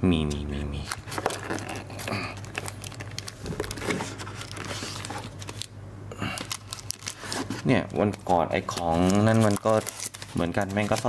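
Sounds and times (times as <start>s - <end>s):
game pieces rummaged by hand: 0.9s - 5.6s.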